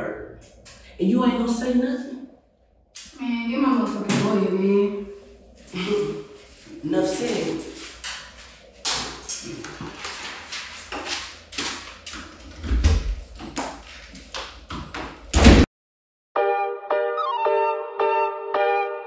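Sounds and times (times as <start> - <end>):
footsteps on hard floor: 5.5 - 15.3
door being opened: 12.4 - 13.6
loud thump: 15.3 - 15.7.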